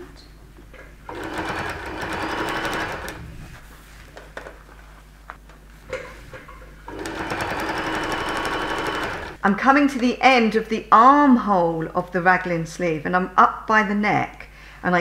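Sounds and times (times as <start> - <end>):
electric sewing machine stitching: 1.1 - 3.3, 6.9 - 9.4.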